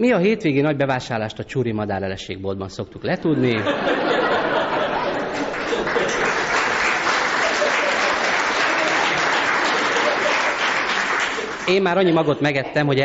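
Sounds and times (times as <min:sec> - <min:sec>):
audience applauding: 0:04.7 - 0:12.0.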